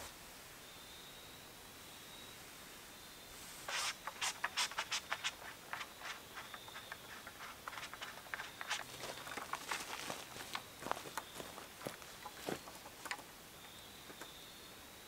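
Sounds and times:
footsteps crunching on dry ground: 3.7s - 13.2s.

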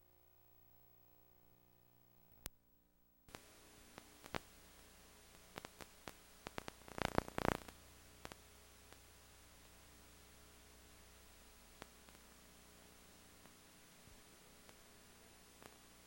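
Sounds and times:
videotape hiss and static: 0.0s - 2.6s, 3.2s - 16.0s
crackling burst: 3.3s - 9.1s.

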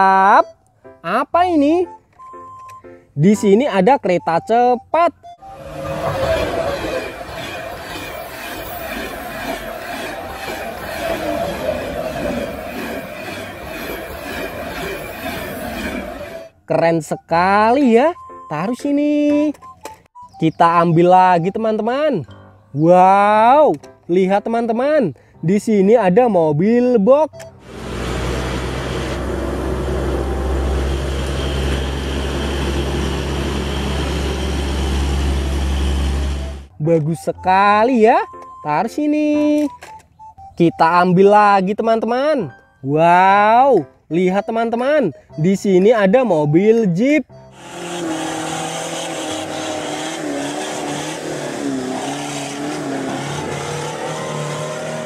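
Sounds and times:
truck diesel engine drone: 5.2s - 16.6s, 27.3s - 36.7s, 47.3s - 55.0s.

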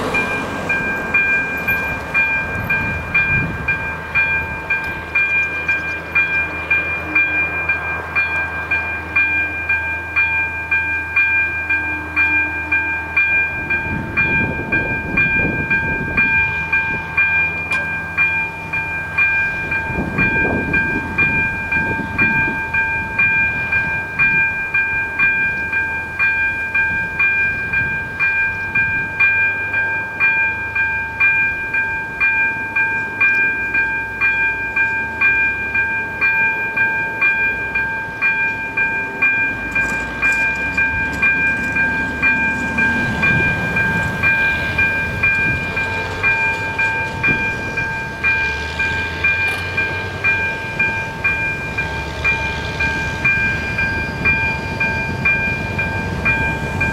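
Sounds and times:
level crossing warning bell ringing: 0.0s - 56.9s.

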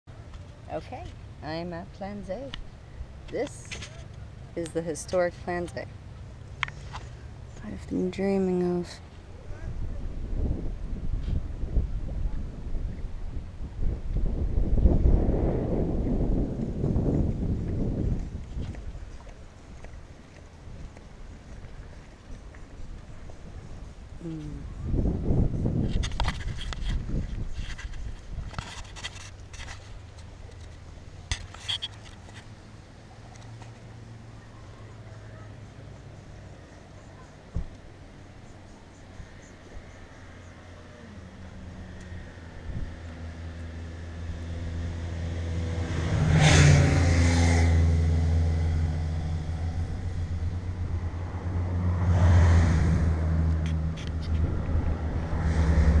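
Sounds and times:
vehicles passing by: 0.1s - 56.0s
camera handling scraping and rubbing: 25.8s - 32.5s.

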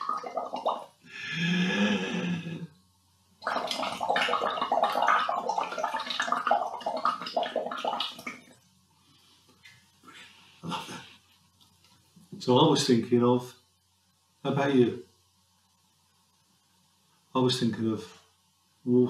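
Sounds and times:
air bubbling through straw in water: 0.0s - 1.0s, 3.4s - 8.6s.

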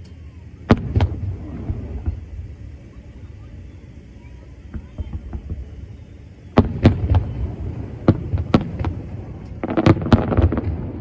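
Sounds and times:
firework shells booming: 0.6s - 2.6s, 4.7s - 11.0s.

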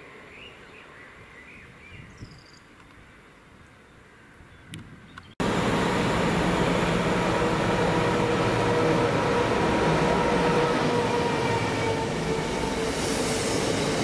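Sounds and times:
faint countryside ambience: 0.0s - 14.0s
freight train rumbling past: 5.4s - 14.0s.

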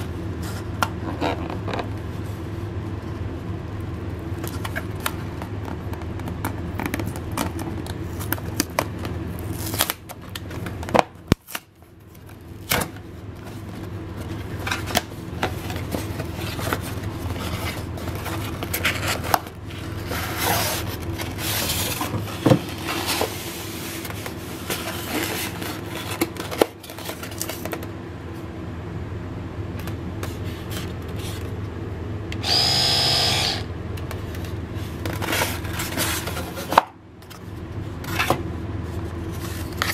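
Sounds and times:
cardboard box rustling and scraping: 13.4s - 27.6s, 34.3s - 36.7s
electric toothbrush motor buzzing: 32.4s - 33.7s.

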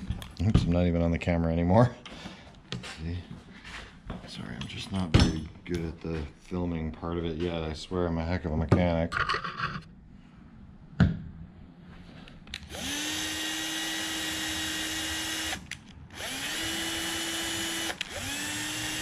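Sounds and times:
cordless drill whining: 12.6s - 19.0s.

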